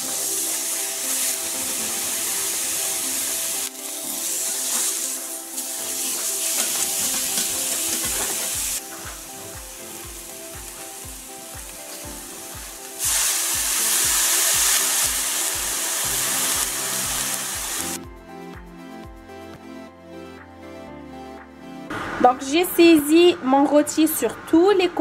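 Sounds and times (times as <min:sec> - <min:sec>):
meat and onions sizzling in a pan: 0:00.0 - 0:18.0
background music with steady beat: 0:00.0 - 0:23.8
liquid poured into hot pan sizzling: 0:11.7 - 0:18.0.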